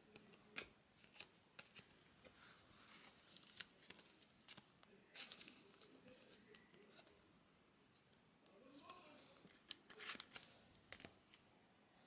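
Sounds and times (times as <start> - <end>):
cards flipped by hand: 3.2 - 6.6, 8.8 - 11.1.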